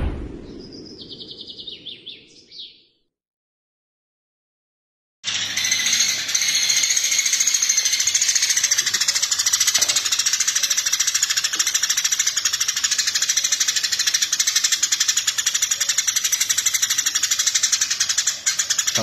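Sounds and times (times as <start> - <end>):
sparrow chattering: 5.3 - 19.0.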